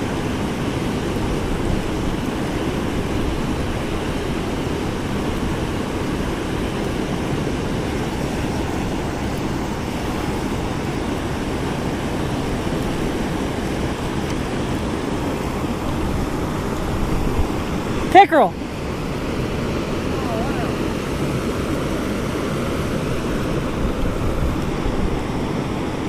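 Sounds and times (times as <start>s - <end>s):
river water rushing over dam: 0.0s - 26.0s.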